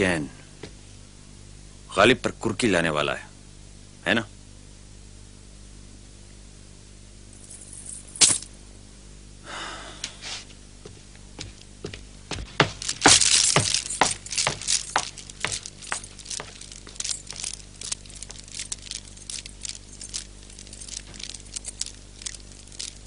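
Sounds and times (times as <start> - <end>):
footsteps of hard shoes on stone: 10.9 - 23.0.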